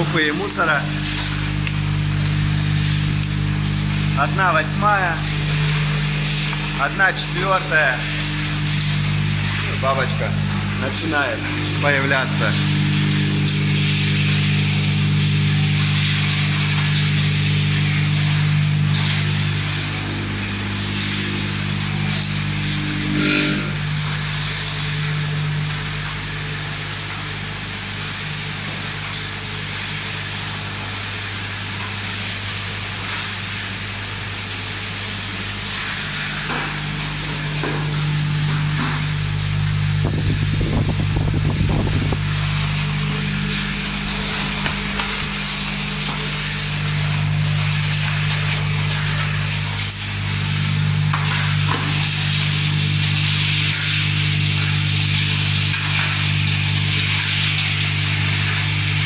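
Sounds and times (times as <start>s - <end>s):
machine motor hum: 0.0s - 31.2s, 31.9s - 59.0s.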